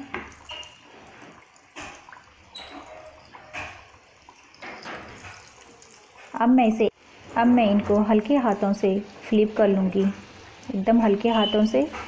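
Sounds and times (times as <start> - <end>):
oil popping and crackling: 0.0 - 6.5
oil sizzling and bubbling: 0.0 - 12.0.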